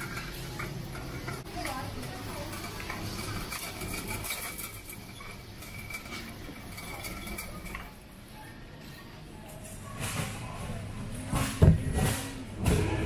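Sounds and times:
wire shopping trolley rattling: 0:00.0 - 0:08.1.

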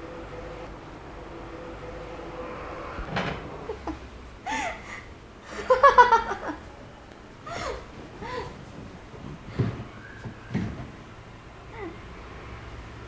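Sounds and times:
woman laughing: 0:03.6 - 0:06.7.

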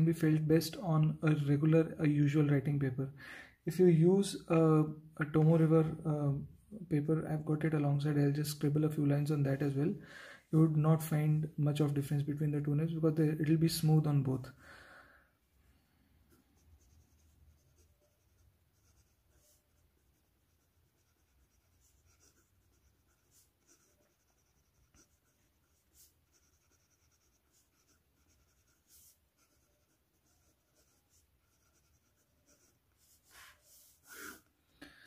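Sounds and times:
pen nib scratching on paper: 0:16.3 - 0:34.5.

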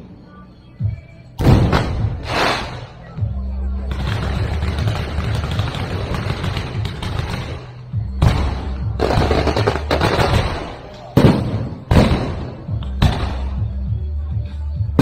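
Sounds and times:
steady low rumble: 0:00.0 - 0:15.0
fireworks bangs: 0:01.4 - 0:03.0, 0:04.0 - 0:13.6
fireworks crackling: 0:01.4 - 0:03.1, 0:03.9 - 0:13.6.

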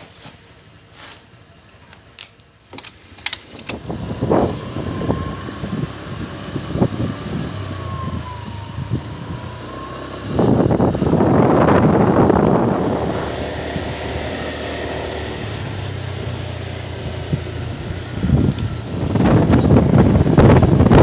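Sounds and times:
light jingle like keys: 0:02.7 - 0:03.8
motorcycle engine running: 0:03.4 - 0:21.0
wind rushing over microphone: 0:03.4 - 0:21.0.

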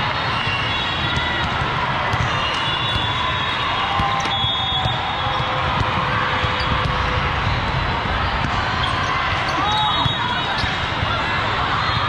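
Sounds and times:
crowd hum: 0:00.0 - 0:12.0
volleyballs struck and bouncing: 0:01.0 - 0:07.4.

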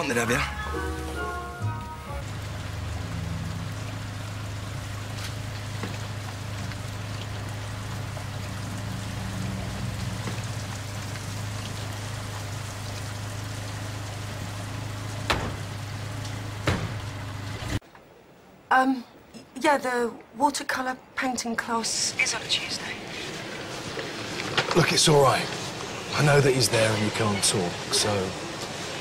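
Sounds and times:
rain falling on street: 0:00.0 - 0:17.8, 0:20.0 - 0:29.0
car doors slamming: 0:15.2 - 0:15.8, 0:16.6 - 0:17.2.

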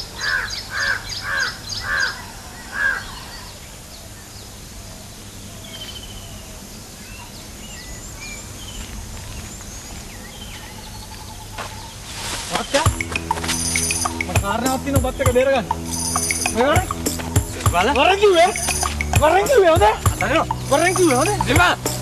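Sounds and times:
small birds chirping faintly: 0:00.0 - 0:22.0
crow cawing: 0:00.2 - 0:03.3.

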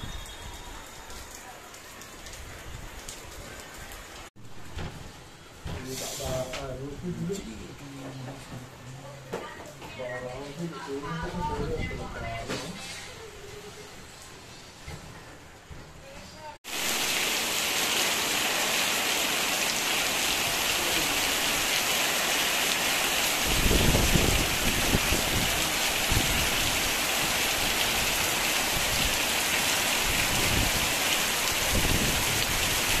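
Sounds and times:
heavy rain pouring: 0:00.0 - 0:09.3, 0:16.6 - 0:33.0.

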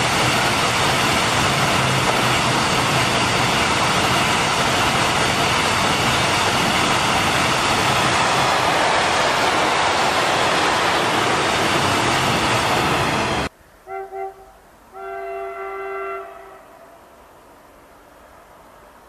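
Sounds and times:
freight train rumbling: 0:00.0 - 0:19.0
train horn toots: 0:13.8 - 0:17.0.

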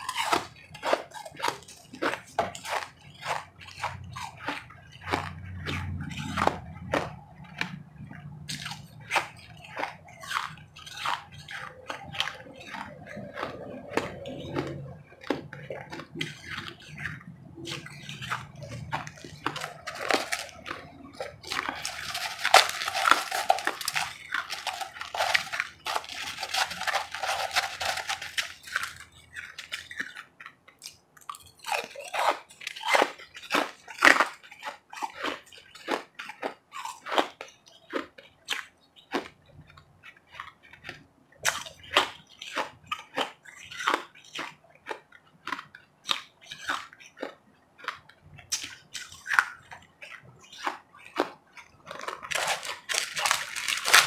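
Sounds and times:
ice being chewed: 0:00.0 - 0:54.0.

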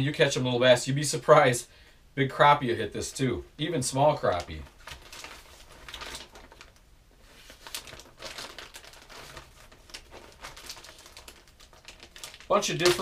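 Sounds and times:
plastic bags crinkling: 0:04.2 - 0:13.0.

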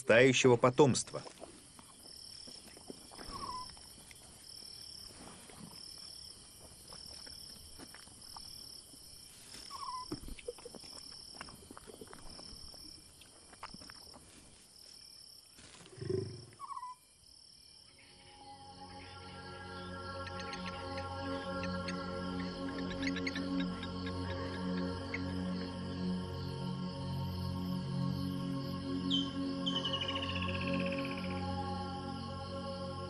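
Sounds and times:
insects chirping: 0:00.0 - 0:33.0
bird-like chirps: 0:03.2 - 0:03.8, 0:09.7 - 0:10.6, 0:17.9 - 0:25.3, 0:29.0 - 0:31.4.

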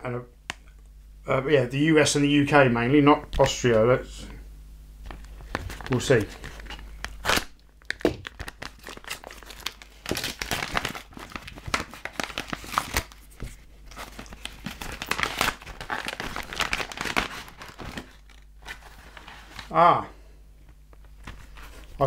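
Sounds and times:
paper crinkling and rustling: 0:05.1 - 0:19.8, 0:20.9 - 0:22.0
paper envelope tearing: 0:05.2 - 0:19.7.

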